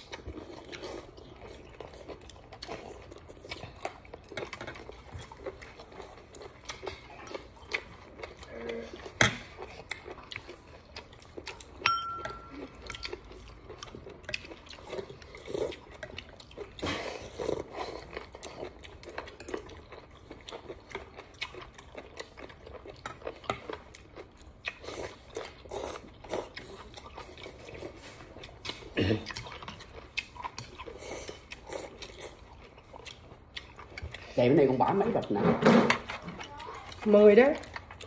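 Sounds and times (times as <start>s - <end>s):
man chewing: 0.0s - 34.4s, 36.0s - 38.0s
spoon and chopsticks clicking on bowl: 11.8s - 13.1s.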